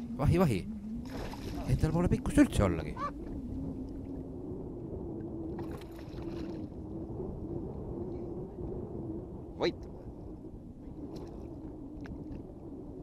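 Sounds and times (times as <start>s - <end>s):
faint steady hum: 0.0s - 13.0s
wind: 0.0s - 13.0s
water lapping around boat: 1.0s - 1.9s.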